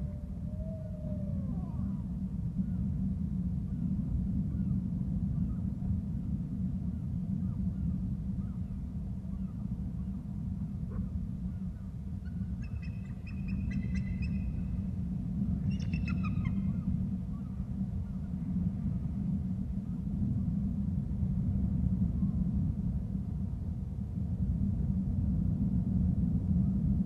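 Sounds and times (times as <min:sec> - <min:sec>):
steady low rumble: 0:00.0 - 0:27.0
bird piping calls: 0:12.6 - 0:14.6, 0:15.7 - 0:16.8.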